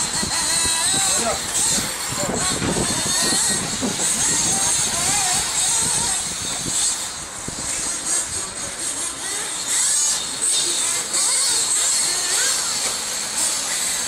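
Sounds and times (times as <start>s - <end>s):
remote control buggy motors whining: 0.0s - 14.0s.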